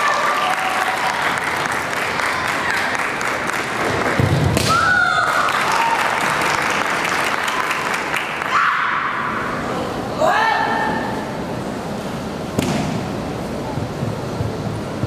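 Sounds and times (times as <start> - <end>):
audience applause: 0.0 - 4.4, 5.1 - 8.6
long high held shout: 8.4 - 9.6.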